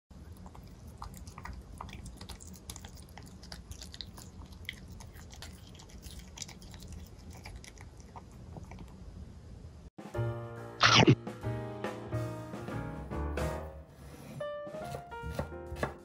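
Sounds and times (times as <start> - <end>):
cat chewing wet food: 0.2 - 9.0.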